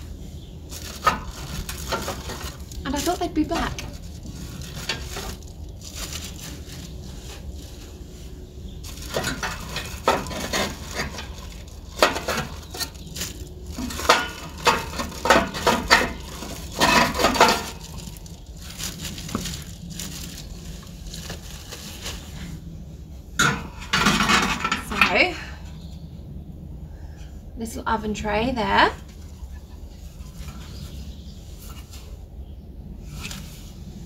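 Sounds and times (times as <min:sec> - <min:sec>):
steady low rumble: 0:00.0 - 0:34.0
plastic wrapping crinkling: 0:00.6 - 0:22.7.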